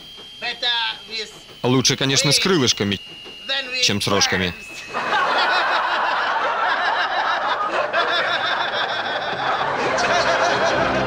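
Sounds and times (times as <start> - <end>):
crowd laughing: 4.9 - 11.0.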